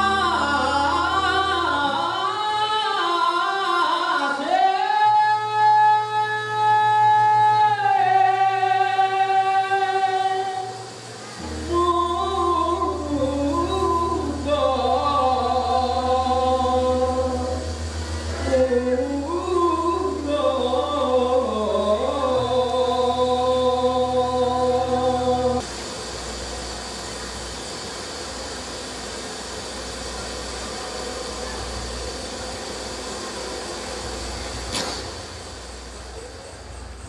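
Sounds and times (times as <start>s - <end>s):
man singing long notes: 0.0s - 25.6s
voices singing together: 0.0s - 25.7s
low drone: 0.0s - 37.0s.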